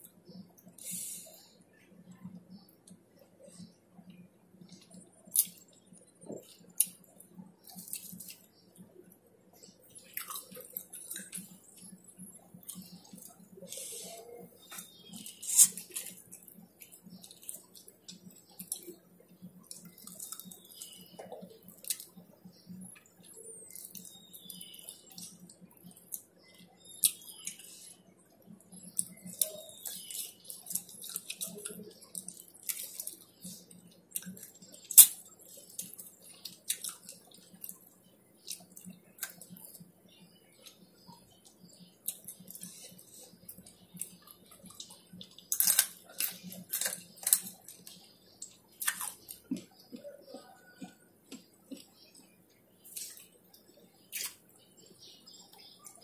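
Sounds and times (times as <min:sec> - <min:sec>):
person chewing and lip smacking: 0:10.0 - 0:22.3, 0:22.9 - 0:39.9, 0:40.6 - 0:54.4.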